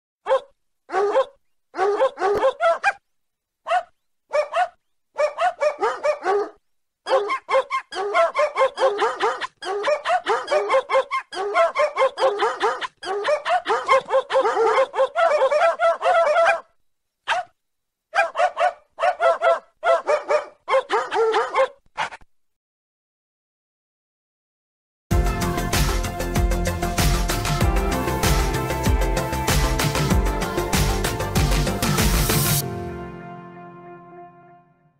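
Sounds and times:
dog barking ringtone: 0.3 - 3.0, 3.7 - 16.7, 17.3 - 17.5, 18.2 - 21.8.

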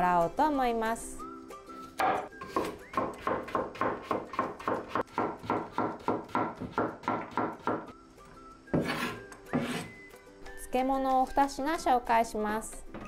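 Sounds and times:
knife chopping on wooden board: 2.0 - 7.9, 8.7 - 9.9.

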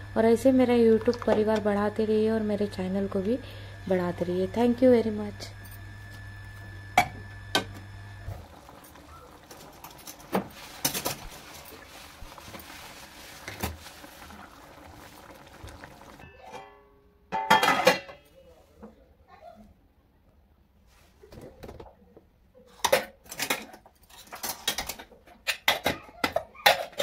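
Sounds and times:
curry bubbling in a pan: 8.2 - 16.2
steel plate clattering on pan: 16.2 - 18.2.

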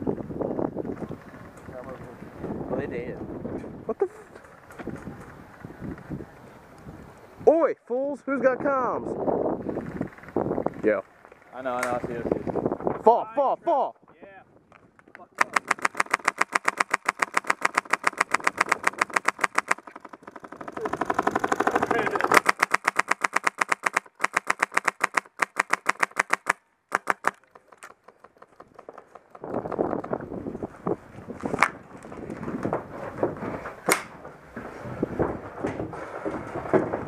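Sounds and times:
gear rustling and knocking: 15.4 - 26.4, 31.4 - 37.0
airsoft rifle firing: 15.4 - 27.8.

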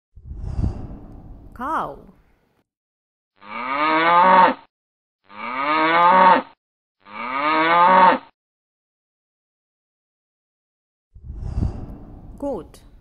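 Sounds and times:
cow mooing: 3.4 - 4.7, 5.3 - 8.3.

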